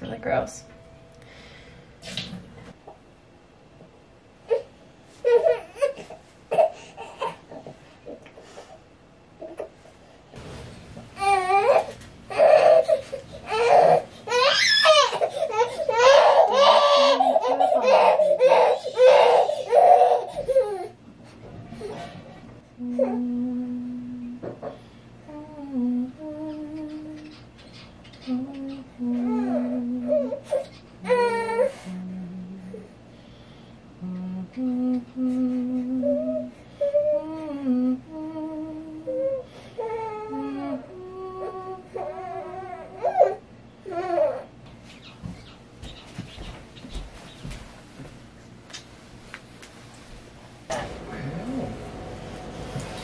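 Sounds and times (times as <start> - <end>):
baby crying: 11.2 - 21.0, 39.3 - 44.5
woman humming: 22.8 - 27.5, 28.2 - 33.0, 34.0 - 43.0, 50.7 - 52.1.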